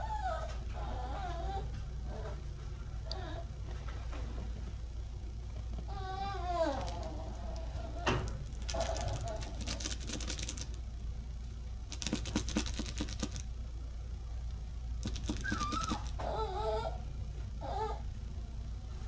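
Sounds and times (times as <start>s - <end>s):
warbling squeaks: 6.0s - 10.7s, 15.0s - 16.9s
quick clicking: 8.5s - 10.8s, 11.9s - 13.4s, 15.0s - 16.2s.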